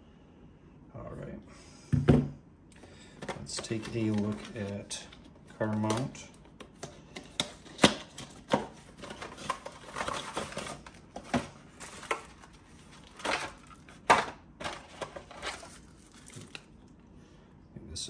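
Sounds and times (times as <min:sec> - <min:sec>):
packaging rustling: 0:03.2 - 0:16.8.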